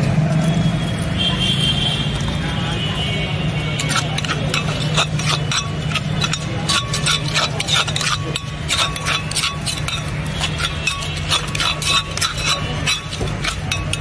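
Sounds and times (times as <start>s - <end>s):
metal spoon clinking in stone mortar: 3.8s - 14.0s.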